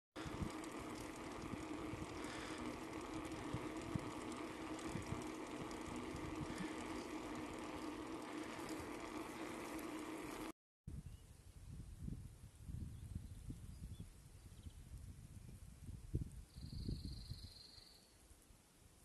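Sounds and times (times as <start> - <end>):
bike tyres humming on asphalt: 0.2 - 10.6
wind noise: 10.9 - 17.4.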